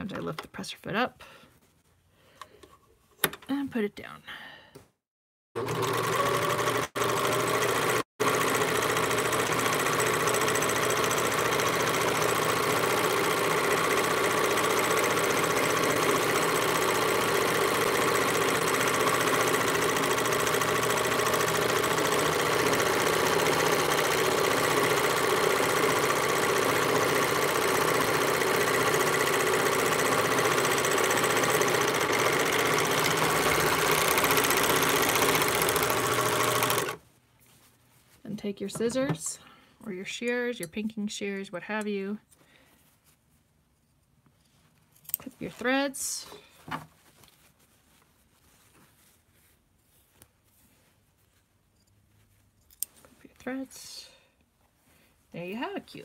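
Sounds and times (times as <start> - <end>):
overlock sewing machine running: 5.6 - 37.0.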